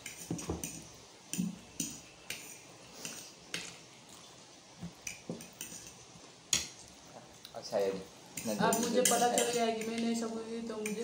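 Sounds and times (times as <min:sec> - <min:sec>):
forks clinking on plates: 0:08.4 - 0:10.0.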